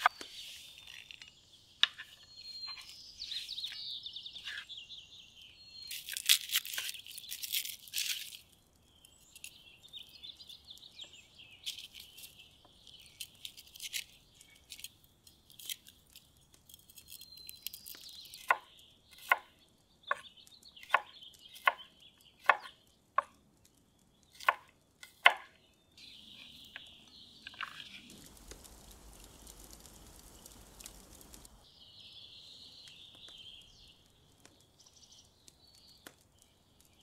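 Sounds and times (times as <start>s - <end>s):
knife cutting garlic on wood: 16.9s - 23.4s, 24.3s - 25.6s.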